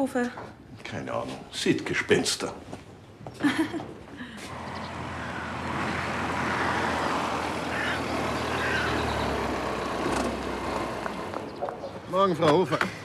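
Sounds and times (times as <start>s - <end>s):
car engine and tyre noise: 4.4s - 13.0s.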